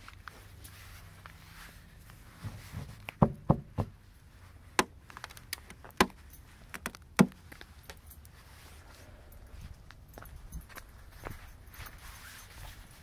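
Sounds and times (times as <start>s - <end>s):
icicles cracking and snapping: 4.8s - 8.0s.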